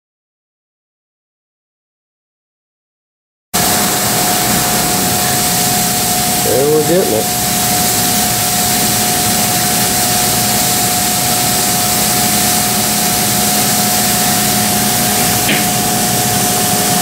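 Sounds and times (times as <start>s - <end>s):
laser cutter hissing and whining: 3.6s - 17.0s.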